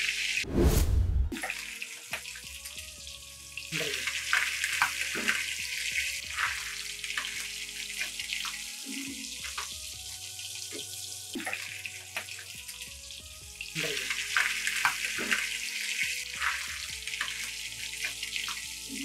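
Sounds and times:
fish sizzling in hot oil: 0:00.0 - 0:00.4, 0:01.5 - 0:19.0.

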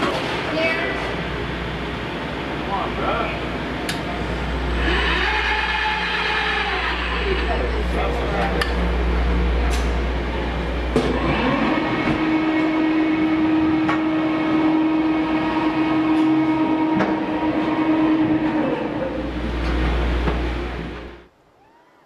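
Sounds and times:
cargo elevator machine hum: 0:00.0 - 0:21.3.

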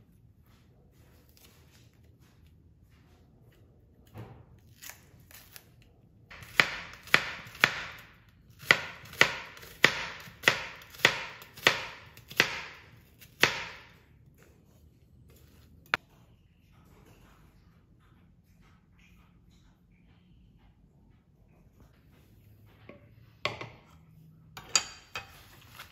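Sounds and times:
knife chopping on cutting board: 0:06.3 - 0:14.8.

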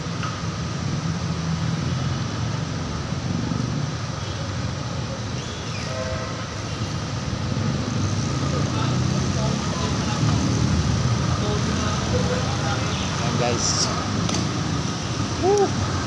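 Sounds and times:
motor traffic: 0:00.0 - 0:16.0.

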